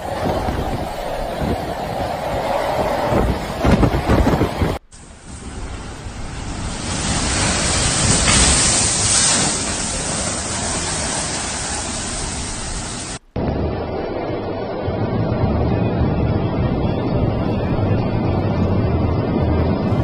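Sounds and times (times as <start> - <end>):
wind buffeting microphone: 0.0 - 11.8
strong wind rushing through doorway: 0.0 - 20.0.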